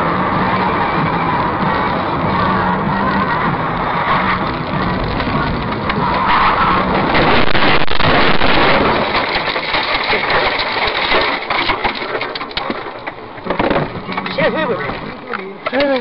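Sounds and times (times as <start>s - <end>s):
snow and branches scraping car: 0.0s - 16.0s
sharp knocks and cracks: 4.0s - 16.0s.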